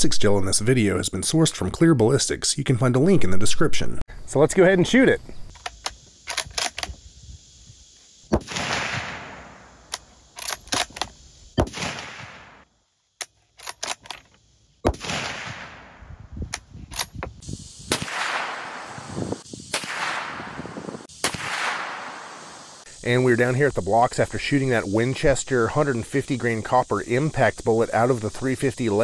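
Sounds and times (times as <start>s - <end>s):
rifle shots with echo: 8.4s - 9.6s, 11.6s - 12.6s, 14.9s - 16.0s, 17.9s - 19.0s, 19.7s - 22.5s.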